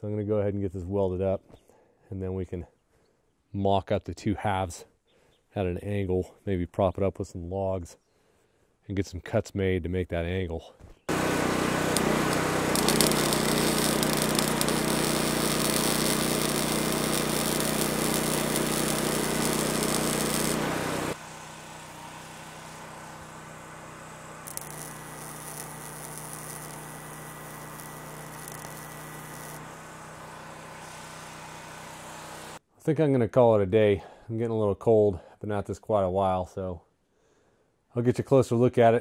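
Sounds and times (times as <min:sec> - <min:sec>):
welder crackling and sizzling: 0:11.1 - 0:21.2, 0:24.4 - 0:31.0
welding machine hum: 0:11.1 - 0:32.6.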